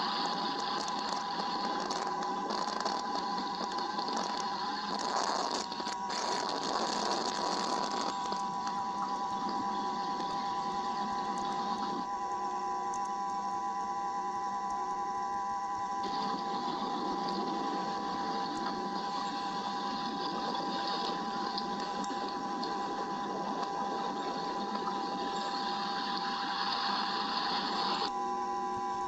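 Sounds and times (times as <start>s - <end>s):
rain hissing on microphone: 0.0s - 12.4s, 16.0s - 28.1s
high electronic whine: 0.0s - 29.0s.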